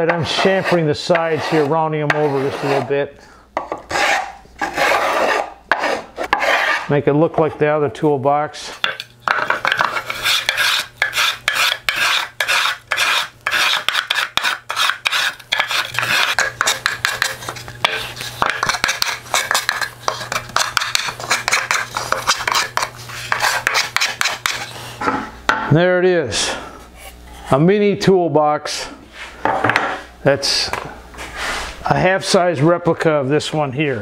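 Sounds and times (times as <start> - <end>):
hand plane shaving wood: 0.1 - 2.9, 3.9 - 6.9, 9.4 - 24.8.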